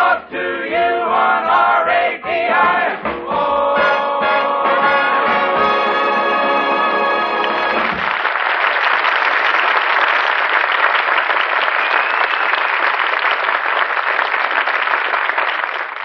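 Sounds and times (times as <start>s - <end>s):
brass band chord: 3.6s - 8.0s
audience applauding: 7.1s - 16.0s.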